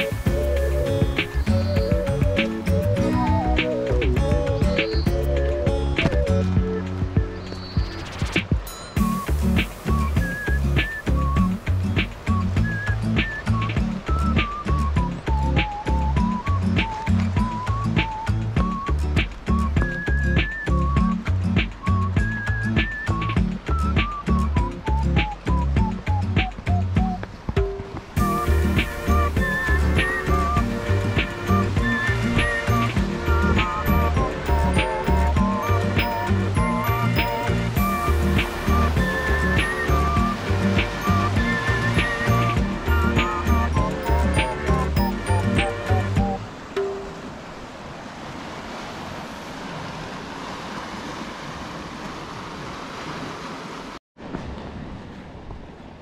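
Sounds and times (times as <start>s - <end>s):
background music with beat: 0.0s - 47.1s
wind noise: 0.0s - 53.2s
sea surf on rocky shore: 0.0s - 56.0s.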